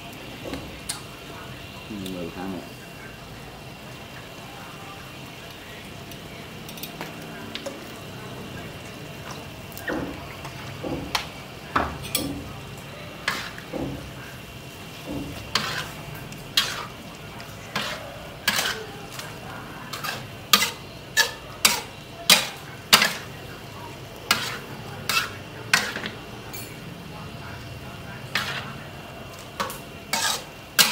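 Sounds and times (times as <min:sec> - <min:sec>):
food sizzling in a wok: 0:00.0 - 0:30.9
metal ladle scraping wok: 0:13.2 - 0:13.7, 0:15.3 - 0:23.3, 0:24.3 - 0:26.7, 0:28.3 - 0:28.8, 0:29.6 - 0:30.9.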